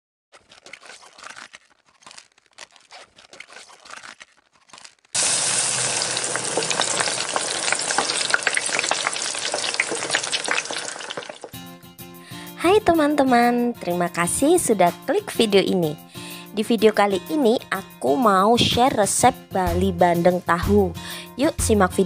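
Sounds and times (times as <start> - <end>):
food sizzling in hot oil: 5.1 - 11.6.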